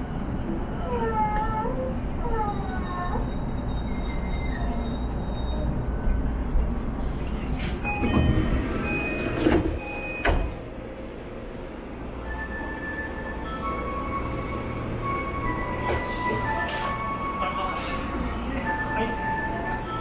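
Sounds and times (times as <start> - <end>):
train low hum: 0.0 - 20.0
sliding doors closing thumps: 7.6 - 10.7
door chime: 7.8 - 10.6.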